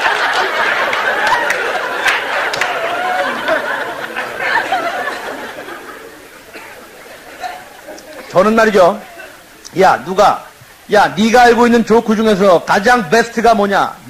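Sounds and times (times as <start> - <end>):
audience laughing: 0.0 - 9.6.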